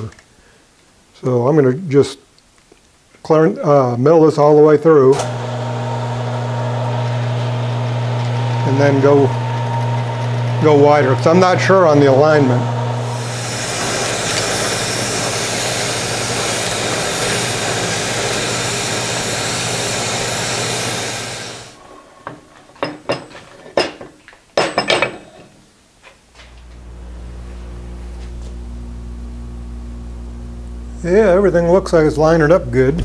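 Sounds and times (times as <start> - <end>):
milling machine cutting metal: 5.2 - 21.8
low steady hum: 26.4 - 33.0.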